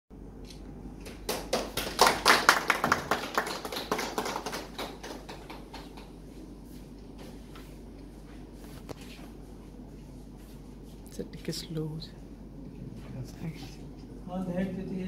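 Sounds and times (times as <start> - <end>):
small group applauding: 1.0 - 6.2.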